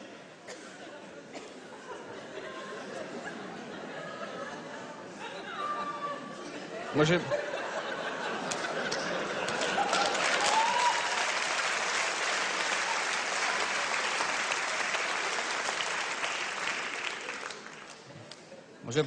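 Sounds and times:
audience applauding: 0:08.4 - 0:18.5.

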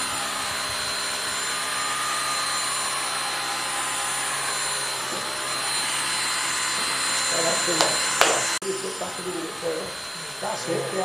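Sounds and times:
vacuum cleaner running: 0:00.0 - 0:11.0.

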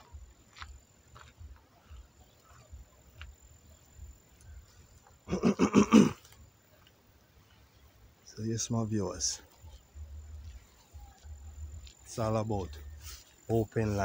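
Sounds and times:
faint low rumble: 0:07.2 - 0:13.0.

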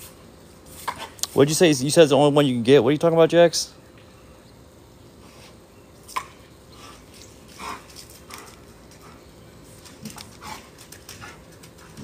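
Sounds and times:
dogs making faint sounds: 0:05.2 - 0:12.0.

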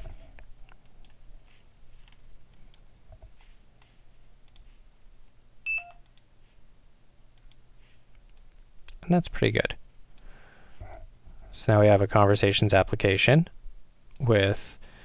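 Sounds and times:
computer mouse clicks: 0:00.7 - 0:01.2, 0:02.0 - 0:04.7, 0:07.4 - 0:07.6.

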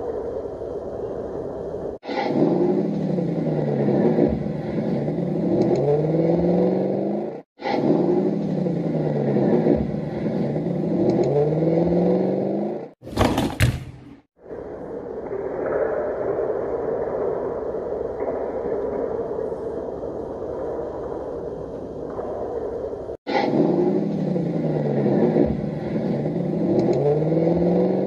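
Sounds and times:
engine revving sound effect: 0:02.0 - 0:13.0, 0:23.3 - 0:28.0.

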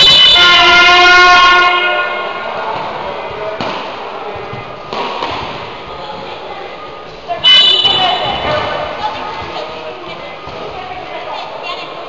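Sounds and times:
timing horn blast: 0:00.0 - 0:02.6.

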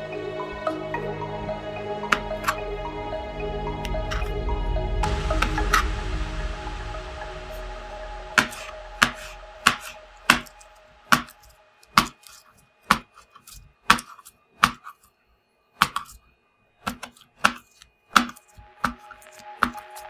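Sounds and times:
knife cutting slime: 0:12.0 - 0:15.1, 0:15.8 - 0:16.2, 0:16.8 - 0:19.8.

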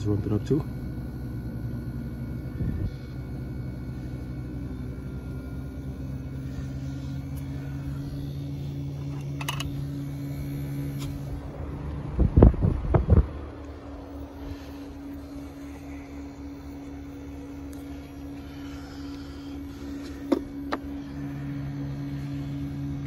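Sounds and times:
air conditioner unit humming: 0:00.0 - 0:23.0.

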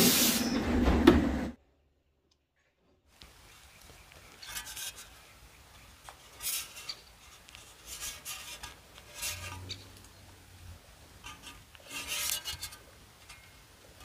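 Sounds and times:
hands rubbing on metal pipe: 0:04.4 - 0:05.3, 0:05.9 - 0:09.8, 0:11.2 - 0:13.4.

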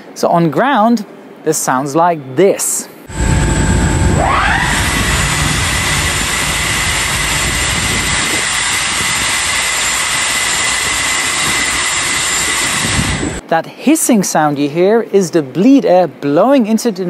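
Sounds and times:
pneumatic motor whine: 0:03.1 - 0:13.4
loud steady air hiss: 0:03.1 - 0:13.5.

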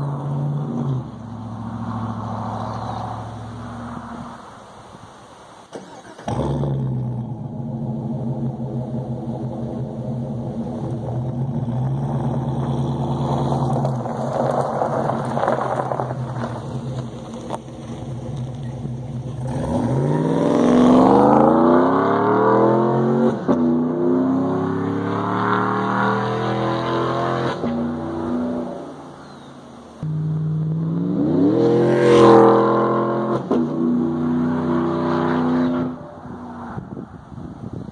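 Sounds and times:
truck exhaust idling and accelerating: 0:00.0 - 0:05.2, 0:06.3 - 0:37.9.

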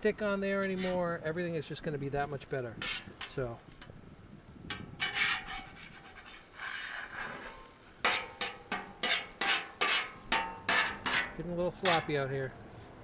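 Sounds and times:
metal spatula scraping griddle: 0:00.4 - 0:01.2, 0:02.8 - 0:03.9, 0:04.7 - 0:12.3.

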